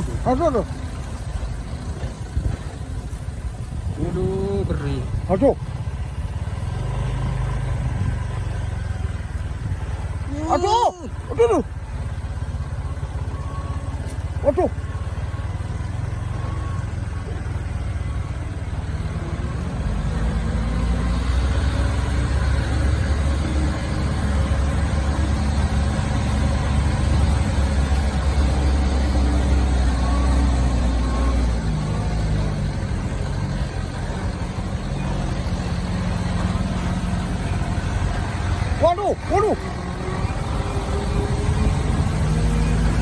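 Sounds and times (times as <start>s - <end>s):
truck diesel engine rumbling: 0.0s - 43.0s.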